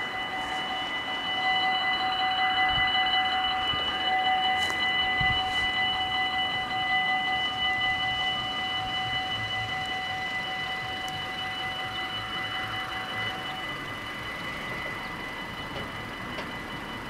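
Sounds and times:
level crossing warning bells: 0.0s - 17.0s.

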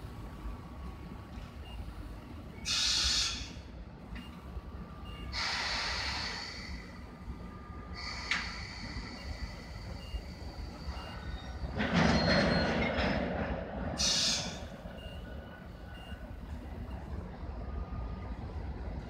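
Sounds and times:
freight train pulling out: 2.4s - 3.8s, 4.8s - 19.0s
short sharp air hiss: 2.7s - 3.5s, 5.4s - 6.8s.

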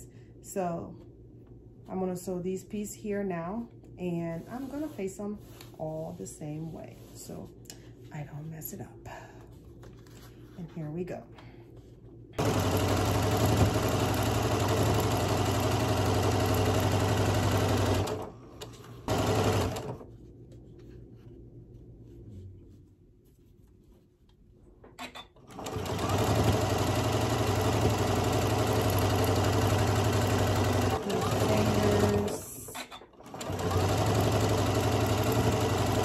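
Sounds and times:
sewing machine stitching: 12.4s - 18.3s, 19.0s - 20.1s, 25.0s - 36.0s.

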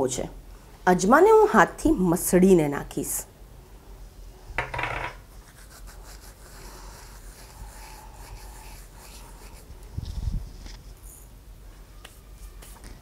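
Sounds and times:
hands rubbing seeds: 5.4s - 11.0s.

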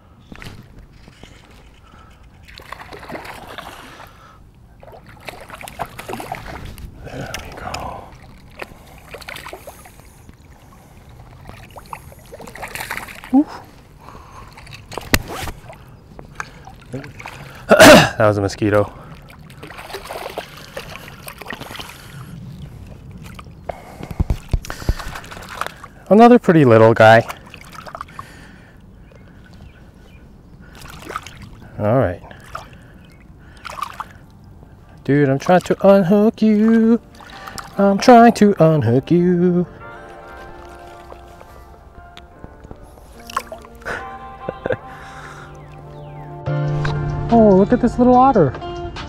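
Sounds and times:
stream water splashing: 0.3s - 46.9s.

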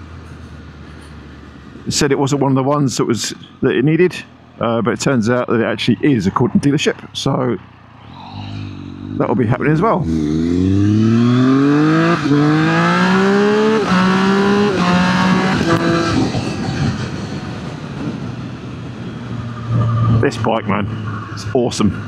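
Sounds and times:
wind and road noise: 0.0s - 22.0s
motorcycle engine accelerating: 7.2s - 20.2s.

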